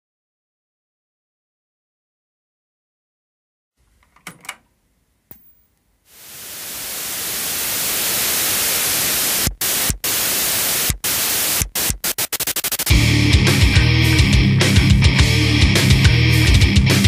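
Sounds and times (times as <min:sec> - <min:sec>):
static white noise hiss: 0:03.8 - 0:12.9.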